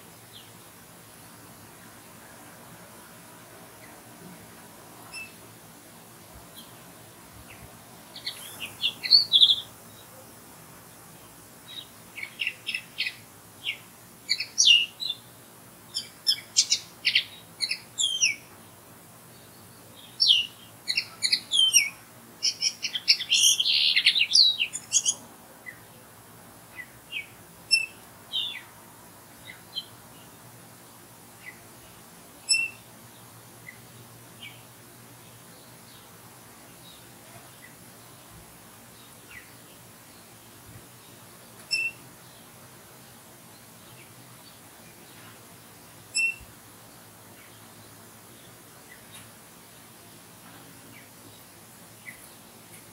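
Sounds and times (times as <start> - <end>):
linnet twittering song: 5.1 - 5.4, 7.5 - 10.1, 11.7 - 15.3, 15.9 - 18.5, 19.3 - 25.9, 26.8 - 28.7, 32.4 - 32.9, 41.0 - 42.5, 46.1 - 46.5.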